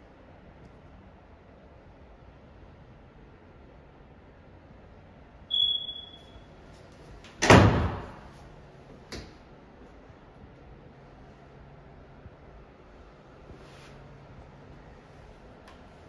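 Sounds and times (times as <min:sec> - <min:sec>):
high-pitched tone: 0:05.5 - 0:06.4
closet door sliding open: 0:07.3 - 0:08.3.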